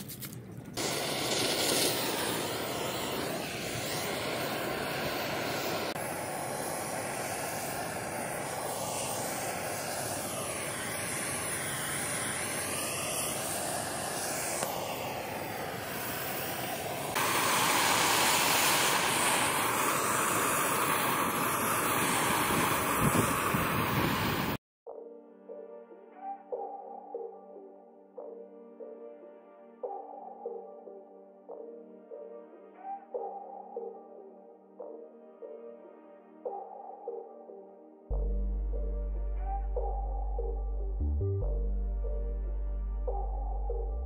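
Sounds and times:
butane torch hissing: 0.8 - 24.6.

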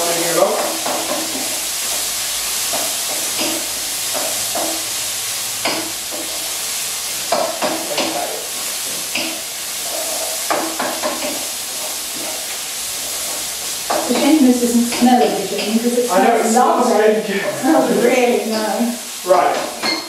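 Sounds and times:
stir-fry sizzling in a wok: 0.0 - 20.0
utensil scraping a pan: 7.3 - 17.9.

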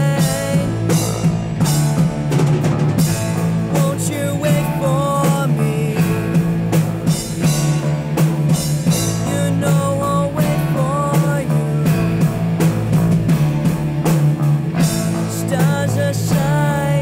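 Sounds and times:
lead guitar bent notes: 0.0 - 17.0
rock band playing: 0.0 - 17.0.

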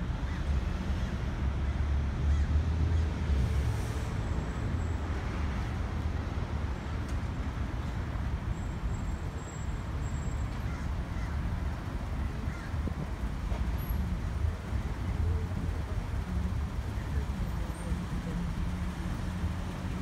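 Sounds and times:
constant traffic hiss: 0.0 - 20.0
passing vehicles rumbling: 0.0 - 20.0.

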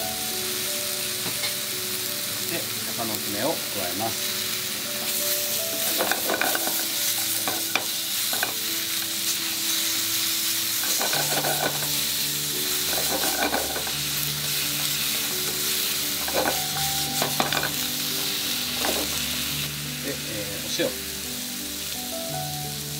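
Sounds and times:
vegetables sizzling in frying pan: 0.0 - 22.9
utensil scraping pan: 5.8 - 8.6, 10.8 - 12.0, 12.8 - 14.0, 16.2 - 17.8.

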